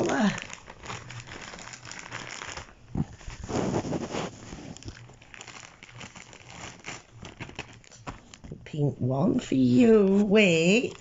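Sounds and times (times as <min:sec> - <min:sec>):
packaging crinkling: 0:00.0 - 0:08.7.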